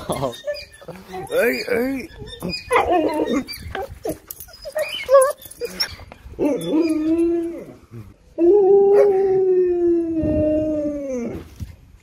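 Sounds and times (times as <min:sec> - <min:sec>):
dog howling: 0:08.4 - 0:11.4.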